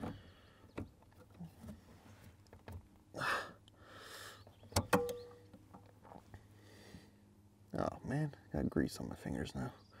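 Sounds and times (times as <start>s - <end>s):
man breathing hard: 3.2s - 4.5s, 6.4s - 7.3s.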